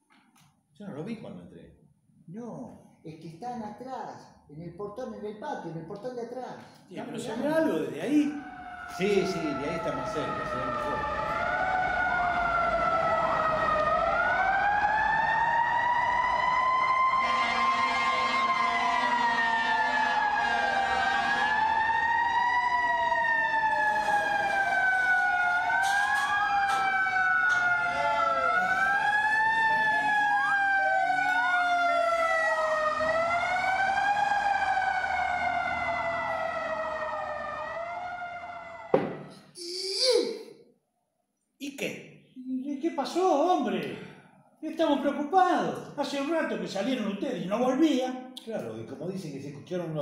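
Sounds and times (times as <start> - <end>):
emergency vehicle sirens wailing: 7.0 - 39.4.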